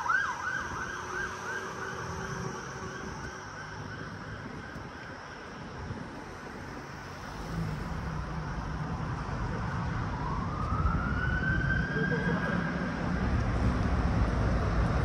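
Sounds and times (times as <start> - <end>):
emergency siren wailing: 0.0 - 6.1, 9.4 - 13.2
road traffic: 0.0 - 15.0.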